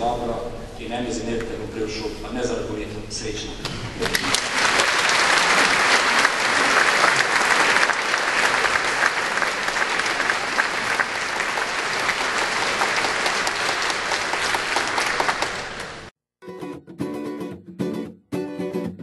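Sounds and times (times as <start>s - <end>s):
large audience applauding: 4.0s - 16.1s.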